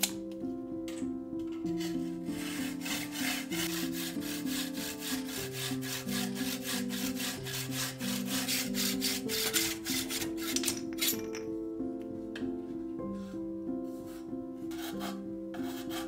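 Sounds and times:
background music: 0.0 - 16.0
hacksaw cutting through a tube: 1.8 - 10.7.

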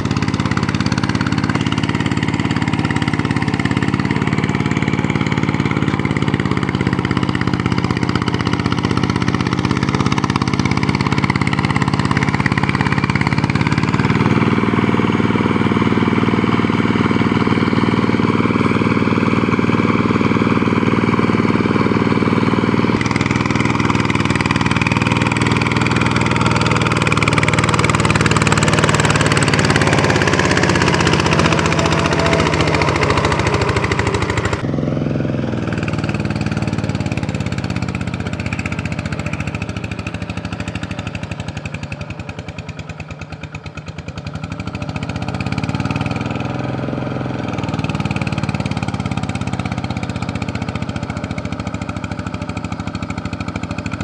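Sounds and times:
diesel tractor engine running: 0.0 - 54.0.

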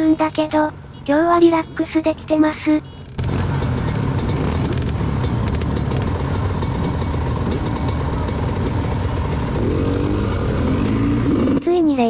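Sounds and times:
motorcycle engines revving: 2.9 - 12.0.

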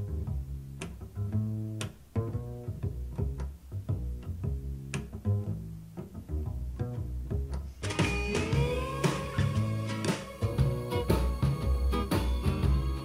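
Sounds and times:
plucked bass-heavy music from speakers: 0.0 - 13.0.

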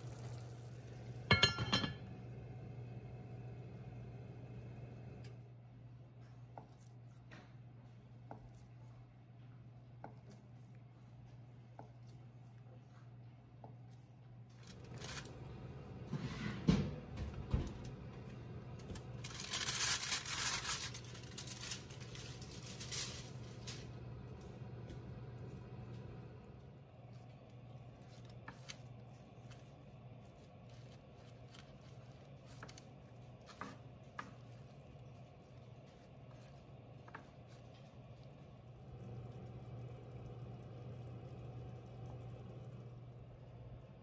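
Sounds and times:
faint low hum: 0.0 - 44.0
aluminium foil crinkling: 14.5 - 15.5, 18.8 - 24.0, 27.1 - 37.9.

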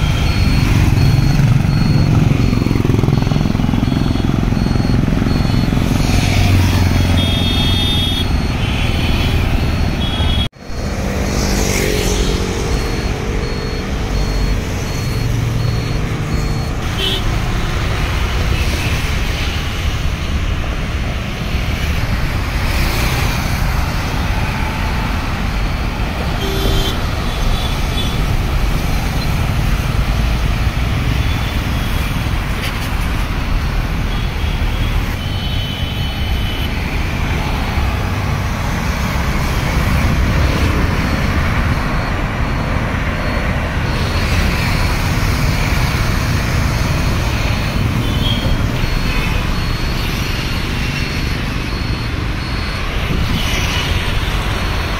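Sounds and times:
traffic on a wet road: 0.0 - 54.9
vehicle horn toots: 7.1 - 9.4, 26.4 - 28.2.

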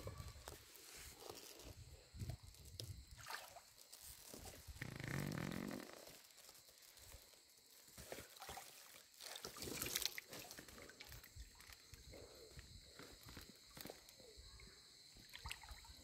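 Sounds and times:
water sloshing and splashing: 1.2 - 4.8, 7.8 - 12.2, 15.1 - 16.0.

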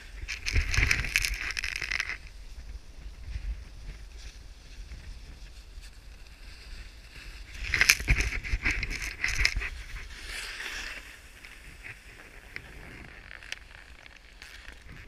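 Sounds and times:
wind on microphone: 0.0 - 14.0
edges scraping over snow: 4.1 - 15.0.

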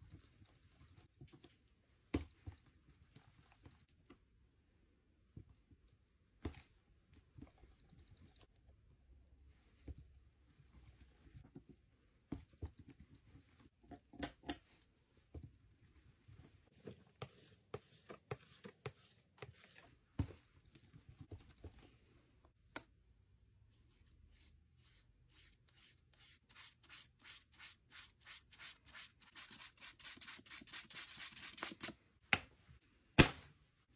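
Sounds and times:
back-and-forth mixing strokes: 16.7 - 20.4
palette knife scraping paint: 16.8 - 20.0, 23.9 - 31.9.

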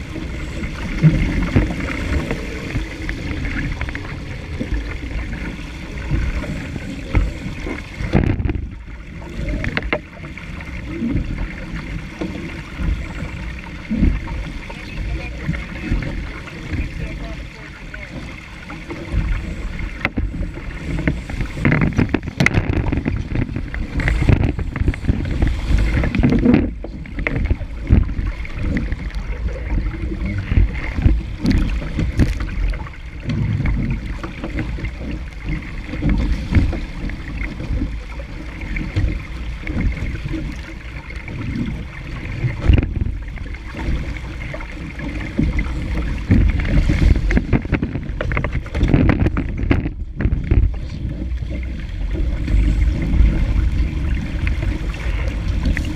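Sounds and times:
wind buffeting microphone: 0.0 - 17.7, 18.8 - 55.9
water rushing along a hull: 0.0 - 55.9.

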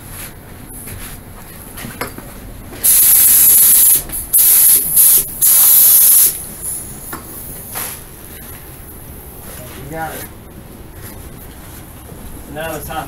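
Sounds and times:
paint spray gun hissing: 2.8 - 6.8.

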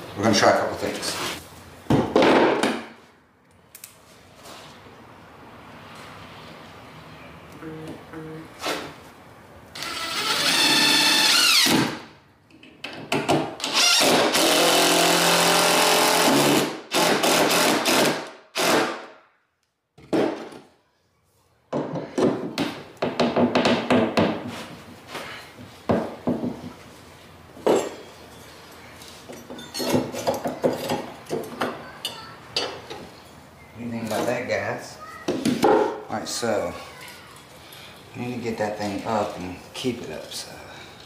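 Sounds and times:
cordless drill driving screws: 9.8 - 11.9, 13.6 - 18.8
hammer knocking on wood: 21.7 - 24.5, 25.9 - 26.7.

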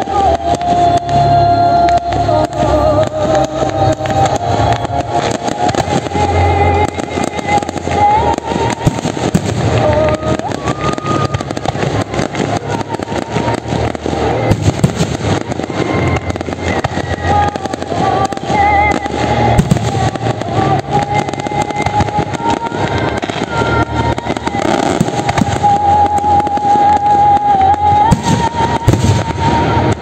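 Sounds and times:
fireworks bursting and crackling: 0.0 - 30.0.

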